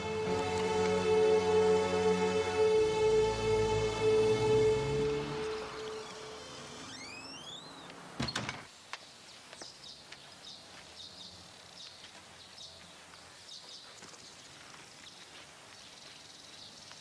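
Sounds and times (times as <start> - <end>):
held music note: 0.0 - 7.6
door creaking: 5.3 - 8.7
faint bird chirps: 6.0 - 8.0
wooden door shutting: 6.1 - 8.7.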